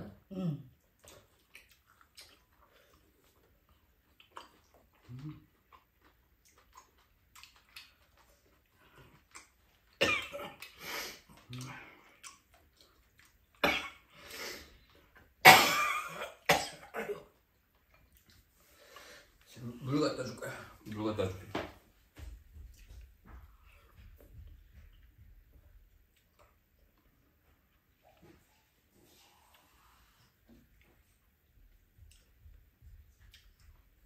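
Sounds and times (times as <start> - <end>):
woman coughing: 10.0 - 10.5, 15.5 - 17.3.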